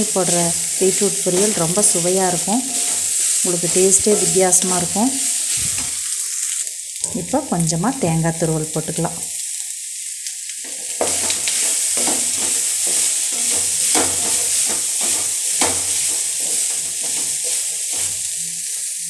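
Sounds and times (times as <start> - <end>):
food sizzling in oil: 0.0 - 19.0
spatula scraping through food: 2.6 - 4.4, 11.0 - 18.3.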